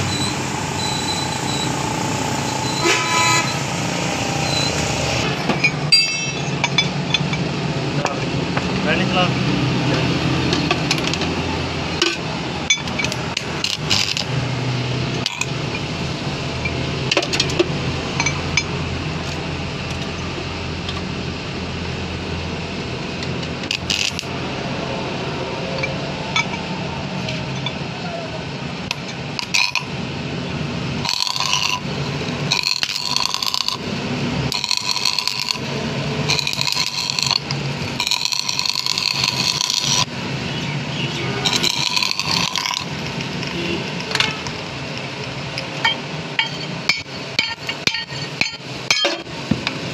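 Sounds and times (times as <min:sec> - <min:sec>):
metal clinks: 0:05.6 - 0:07.4
welding arc crackling: 0:13.1 - 0:15.6, 0:23.3 - 0:24.4, 0:28.9 - 0:30.1, 0:30.8 - 0:40.4, 0:41.3 - 0:45.4.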